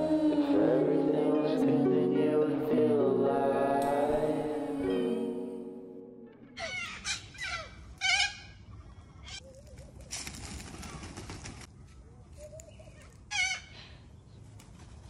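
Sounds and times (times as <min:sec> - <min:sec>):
parrots calling: 0:06.6 - 0:09.4.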